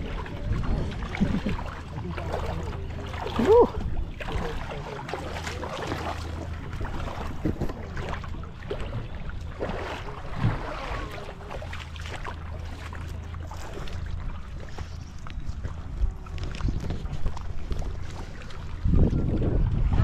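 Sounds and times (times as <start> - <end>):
wind on microphone: 0.0 - 2.6, 6.7 - 11.2, 13.6 - 20.0
boat engine idling: 0.0 - 19.8
water splashing: 0.0 - 20.0.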